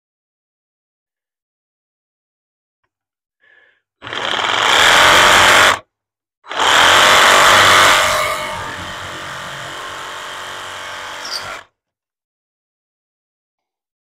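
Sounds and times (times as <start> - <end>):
power saw cutting plastic: 4.0 - 5.8, 6.5 - 11.7.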